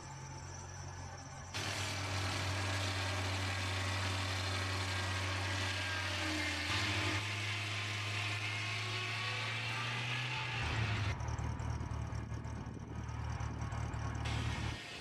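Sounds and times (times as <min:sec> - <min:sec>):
engine humming: 0:00.0 - 0:15.0
saw blade hissing through wood: 0:01.6 - 0:11.1, 0:14.3 - 0:15.0.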